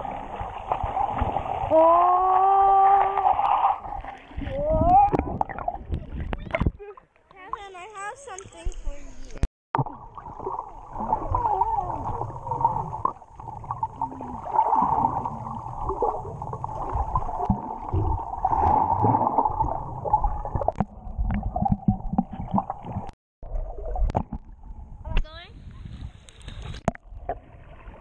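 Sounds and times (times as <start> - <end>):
muffled underwater water gurgling: 8.7 - 25.0.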